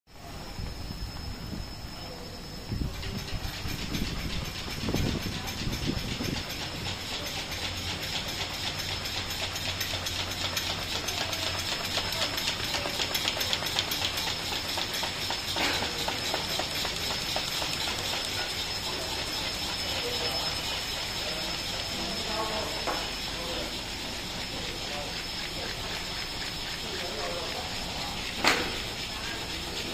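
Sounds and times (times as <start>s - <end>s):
high whine: 0.1s - 7.1s
folding machine clattering: 3.6s - 20.4s.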